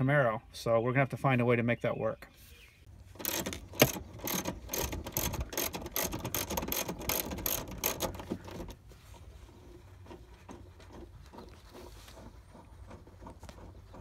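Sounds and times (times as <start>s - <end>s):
faint handling noise: 2.4s - 14.0s
ratchet wrench clicking: 3.2s - 8.6s.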